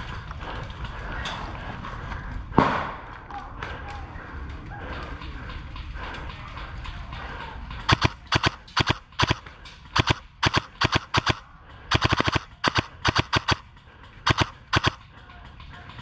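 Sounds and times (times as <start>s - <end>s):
airsoft rifle shots: 7.9s - 13.6s, 14.2s - 15.0s.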